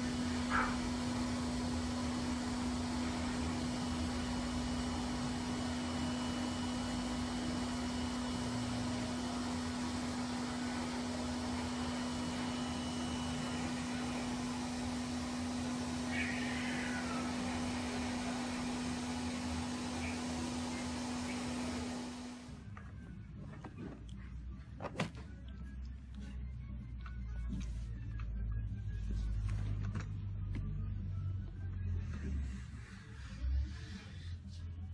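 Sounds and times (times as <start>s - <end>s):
pet blow dryer running: 0.0s - 22.6s
cat crying: 16.0s - 17.7s.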